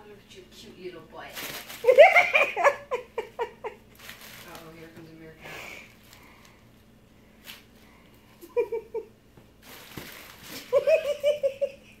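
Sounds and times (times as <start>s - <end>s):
bubble wrap crinkling: 1.2s - 2.5s, 3.9s - 5.0s, 5.8s - 6.7s, 9.6s - 11.1s
person giggling: 8.4s - 9.2s, 10.6s - 12.0s.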